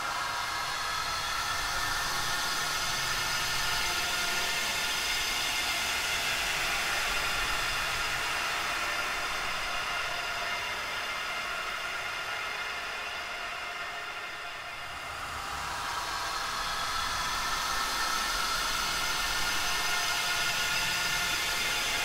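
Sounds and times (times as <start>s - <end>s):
hiss: 14.9s - 22.0s.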